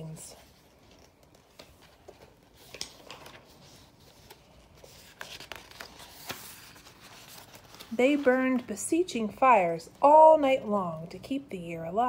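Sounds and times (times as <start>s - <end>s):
book pages rustling: 0.4s - 9.0s.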